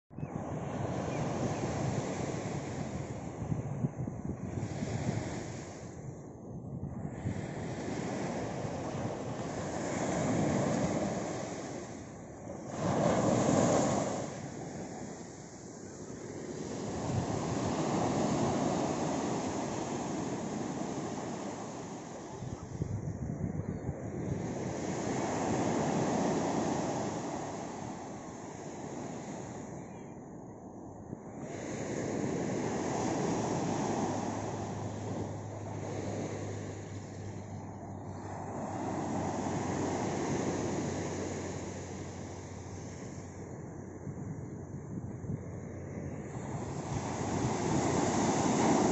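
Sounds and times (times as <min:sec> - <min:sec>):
waves breaking on sand beach: 0:00.4 - 0:06.2, 0:07.0 - 0:29.8, 0:31.2 - 0:48.9
small surf washing on sand: 0:46.3 - 0:48.9.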